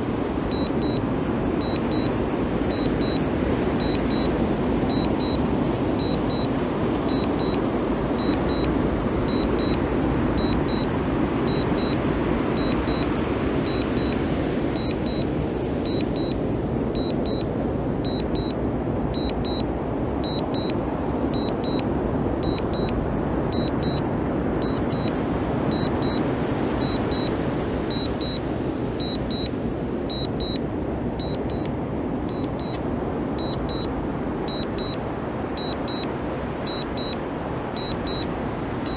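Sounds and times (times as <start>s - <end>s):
steady rushing noise: 0.0s - 38.9s
short high beeps: 0.5s - 1.0s, 1.6s - 2.1s, 2.7s - 3.2s, 3.8s - 4.3s, 4.9s - 5.4s, 6.0s - 6.5s, 7.1s - 7.6s, 8.2s - 8.7s, 9.3s - 9.8s, 10.4s - 10.9s, 11.5s - 12.0s, 12.6s - 13.1s, 13.7s - 14.2s, 14.8s - 15.3s, 15.9s - 16.4s, 17.0s - 17.5s, 18.1s - 18.6s, 19.2s - 19.6s, 20.2s - 20.8s, 21.4s - 21.8s, 22.4s - 24.0s, 24.6s - 25.1s, 25.7s - 26.2s, 26.8s - 28.4s, 29.0s - 29.5s, 30.1s - 30.6s, 31.2s - 31.7s, 32.3s - 32.8s, 33.4s - 33.9s, 34.5s - 35.0s, 35.6s - 36.1s, 36.7s - 37.2s, 37.8s - 38.9s.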